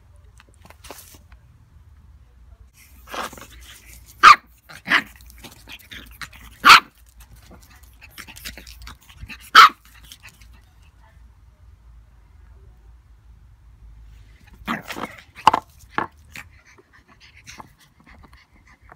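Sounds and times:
puppy barking: 3.1s - 7.0s, 9.2s - 10.2s.

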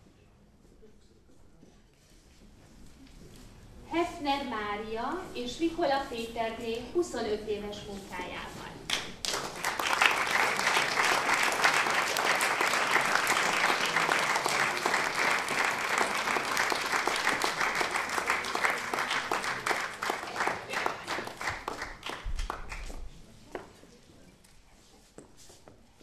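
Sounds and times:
audience applauding: 8.9s - 22.9s.

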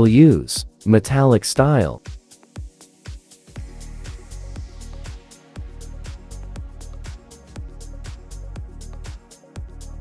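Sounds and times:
electronic music with beat: 0.0s - 10.0s
deep bass: 3.6s - 10.0s.

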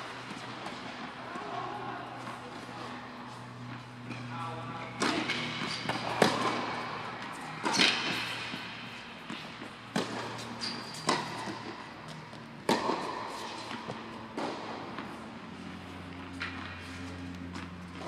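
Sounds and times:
tennis balls hit by rackets: 0.1s - 18.0s
tennis balls bouncing on hard court: 4.9s - 18.0s.

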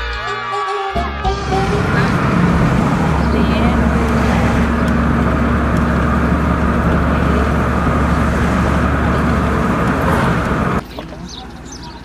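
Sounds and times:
engine hum inside vehicle: 1.3s - 10.8s
road and tyre noise: 1.3s - 12.0s.

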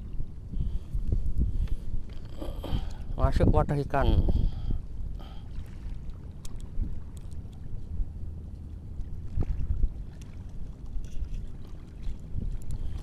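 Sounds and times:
wind rumbling on microphone: 0.0s - 13.0s
faint clicks: 6.1s - 7.7s.

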